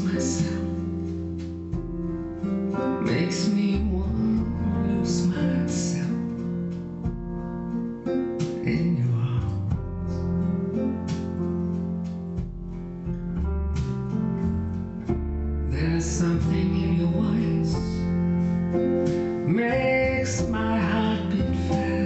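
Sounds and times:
person singing: 0.0s - 1.4s, 2.8s - 6.5s, 8.5s - 10.4s, 15.6s - 22.0s
acoustic guitar song over loudspeaker: 0.0s - 13.1s, 14.6s - 22.0s.

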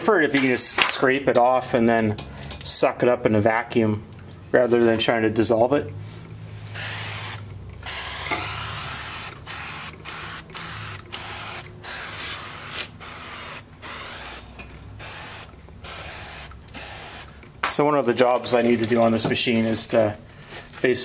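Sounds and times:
sprayer hissing bursts: 6.6s - 17.4s.

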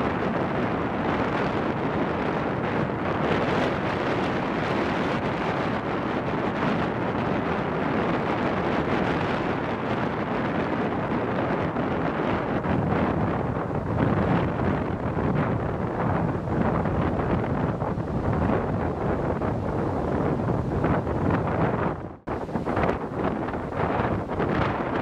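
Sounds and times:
wind blowing across microphone: 0.0s - 25.0s.

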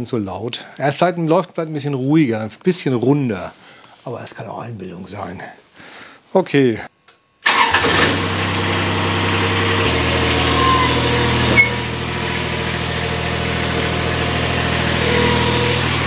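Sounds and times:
diesel engine idling: 7.5s - 16.0s.

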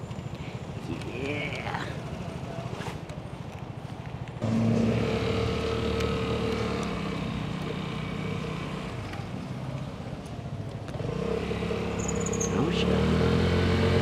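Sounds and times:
motorcycle engine revving: 4.4s - 9.5s, 10.9s - 14.0s.

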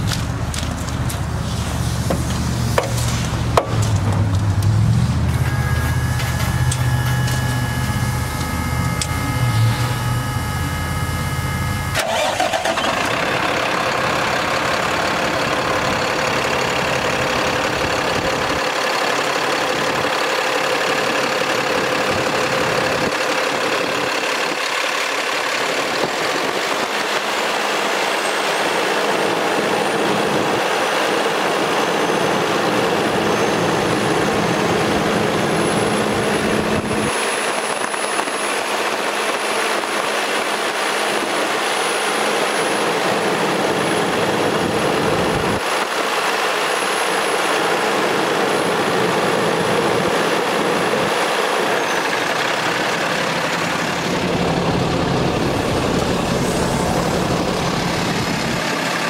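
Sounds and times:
diesel engine idling: 0.0s - 59.0s
hissing engine whir: 0.0s - 59.0s.

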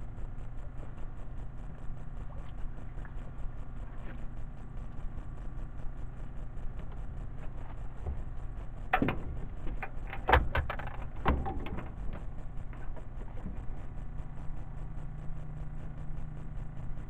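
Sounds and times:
steady low hum: 0.0s - 17.0s
gear knocking and clattering: 7.4s - 13.9s.

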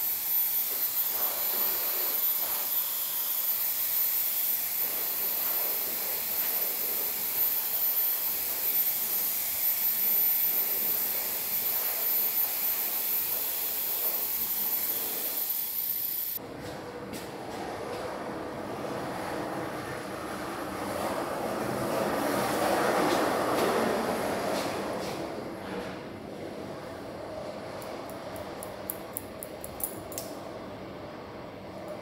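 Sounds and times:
hair dryer blowing: 0.0s - 16.4s.

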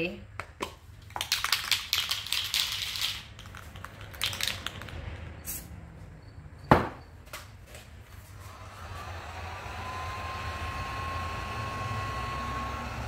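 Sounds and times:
spray-paint can hissing: 5.4s - 5.7s
sharp knock: 6.7s - 7.0s.

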